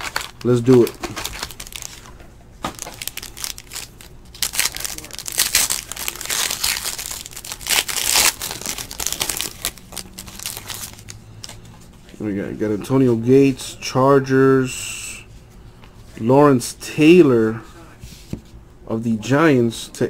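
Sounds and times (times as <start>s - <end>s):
foil wrapper crinkling: 0.0s - 11.6s.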